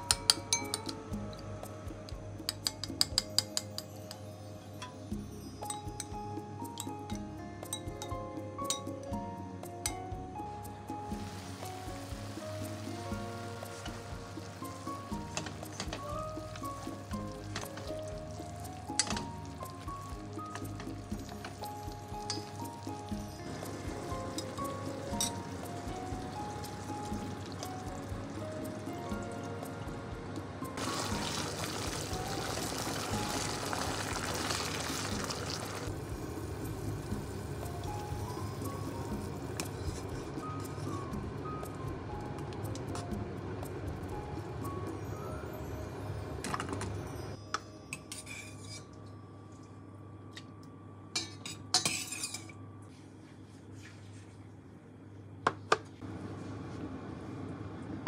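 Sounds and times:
soft background music: 0:00.0 - 0:55.4
low steady hum: 0:10.4 - 0:58.0
food sizzling in a pan: 0:11.1 - 0:29.4, 0:30.8 - 0:41.0.

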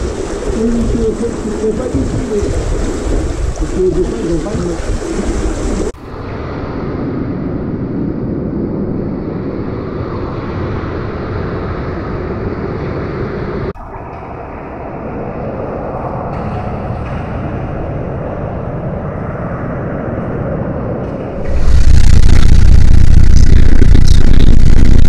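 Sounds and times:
underwater water rushing: 0:00.0 - 0:07.0, 0:21.4 - 0:25.0.

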